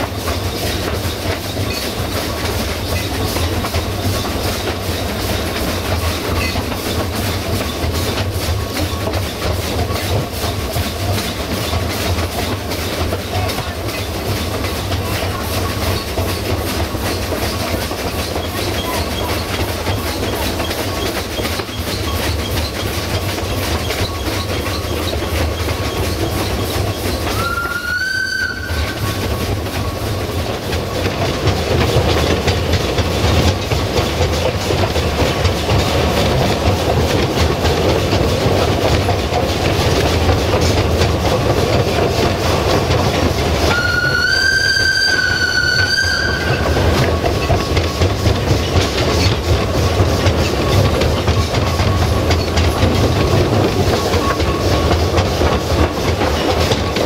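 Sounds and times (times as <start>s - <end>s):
train wheels clattering over rails: 0.0s - 57.0s
steam whistle blasts: 27.3s - 29.2s, 43.7s - 47.1s.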